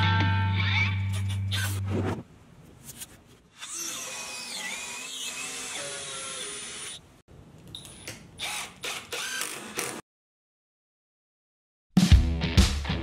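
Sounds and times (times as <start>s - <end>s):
cordless drill whining: 8.4s - 10.0s.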